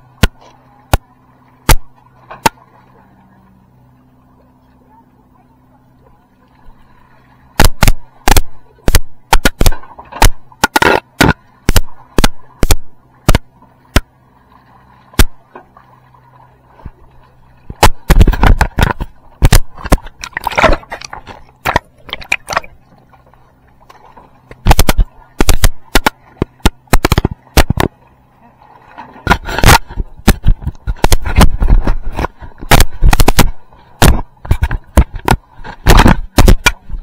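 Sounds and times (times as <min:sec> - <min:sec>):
faint low hum: 0:00.0 - 0:37.0
sharp loud knocks and clicks: 0:07.6 - 0:14.1, 0:17.7 - 0:22.7, 0:24.6 - 0:27.9, 0:29.3 - 0:36.8.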